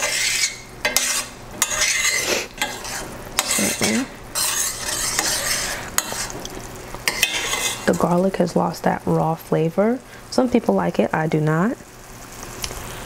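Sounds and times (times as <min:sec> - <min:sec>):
spoon clinking against pan: 0:00.0 - 0:06.3, 0:07.0 - 0:08.1
metal spoon scraping a pan: 0:00.0 - 0:08.3
faint sizzle: 0:00.0 - 0:13.0.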